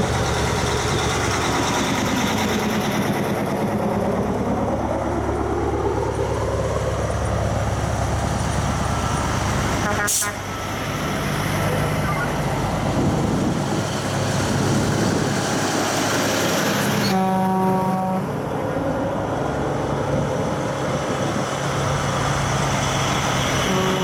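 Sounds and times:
trucks passing: 0.0s - 24.0s
truck horn: 9.8s - 10.6s, 17.0s - 18.3s, 23.6s - 24.0s.

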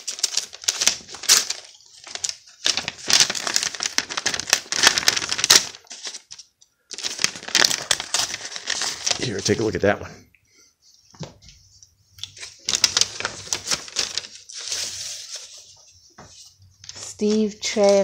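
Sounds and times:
envelope paper tearing: 0.0s - 9.6s, 12.4s - 15.4s
paper crinkling and rustling: 0.0s - 9.8s, 11.2s - 18.0s.

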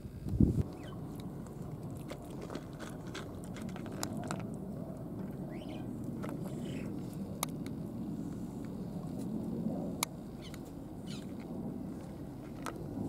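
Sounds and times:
low background rumble: 0.0s - 13.0s
cat chewing and licking: 0.7s - 9.5s.

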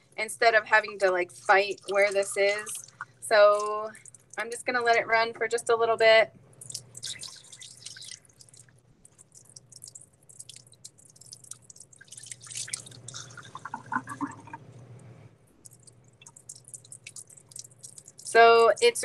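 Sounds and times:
water splashing into a sink: 0.8s - 4.6s, 6.6s - 14.7s, 15.6s - 19.0s
tap water running into a cup: 6.6s - 14.8s.

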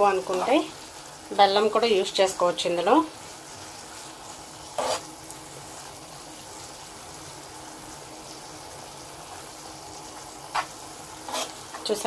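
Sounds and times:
syrup bubbling and sizzling in a pan: 0.0s - 12.0s.

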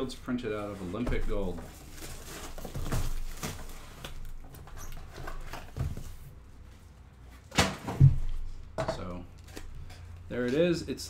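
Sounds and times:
packaging rustling and scraping: 0.3s - 6.4s.

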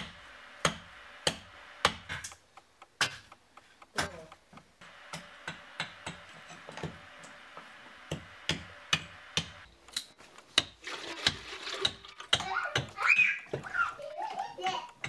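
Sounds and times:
water pouring: 10.8s - 12.3s.

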